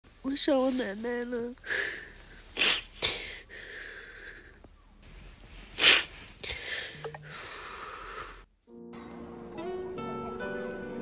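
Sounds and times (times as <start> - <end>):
woman crying and sniffing: 1.6 - 3.5, 5.6 - 7.3
shaky breaths: 1.6 - 8.5.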